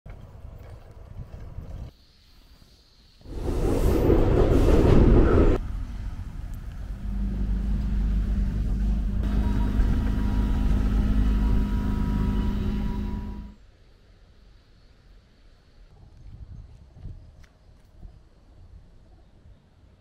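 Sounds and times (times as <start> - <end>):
loud rush of vehicle noise: 3.3 - 13.6
vehicle low running hum: 5.1 - 13.6.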